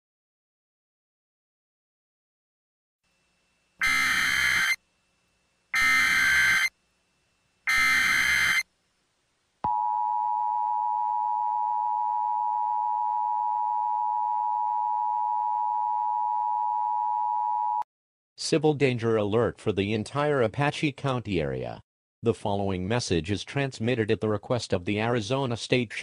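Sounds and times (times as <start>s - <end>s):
data header bursts: 3.8s - 4.8s, 5.8s - 6.7s, 7.7s - 8.6s
two-tone alert signal: 3.8s - 4.8s, 5.8s - 6.7s, 7.7s - 8.6s.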